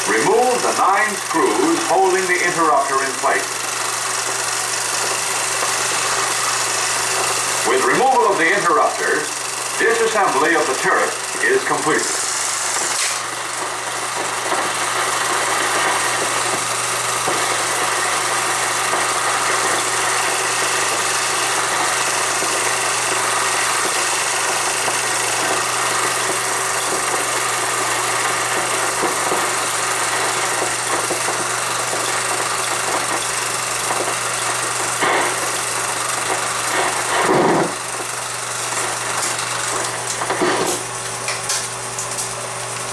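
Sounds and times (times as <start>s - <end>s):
film projector whirring: 0.0s - 42.9s.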